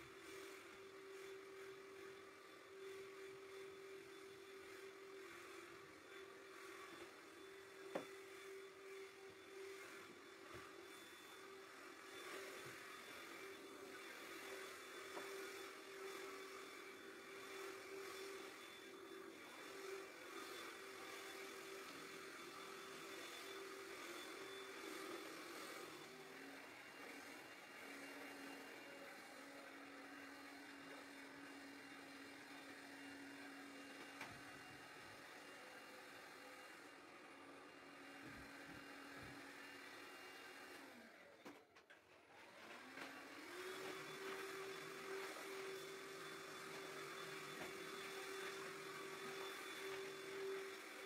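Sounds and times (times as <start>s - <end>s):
vacuum motor whirring: 0.0s - 51.0s.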